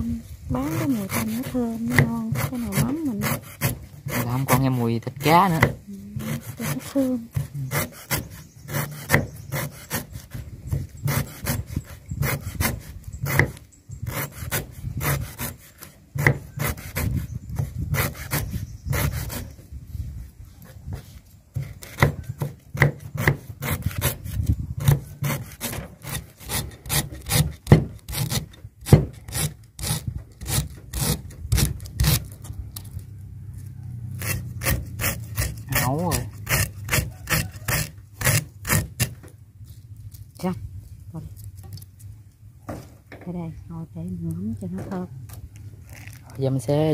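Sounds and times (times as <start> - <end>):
cleaver chopping on wooden board: 1.4 - 4.6, 5.4 - 10.1, 10.7 - 15.6, 16.2 - 19.4, 21.5 - 24.2, 24.8 - 29.5.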